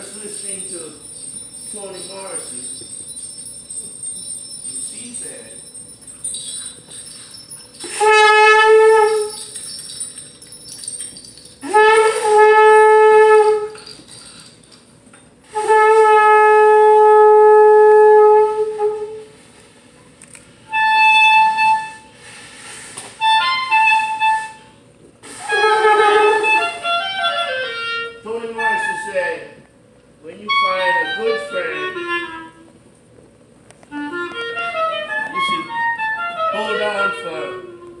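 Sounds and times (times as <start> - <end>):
woodwind instrument playing notes: 6.2 - 9.7, 11.6 - 14.0, 15.5 - 19.4, 20.6 - 22.2, 23.2 - 29.6, 30.2 - 32.8, 33.8 - 38.0.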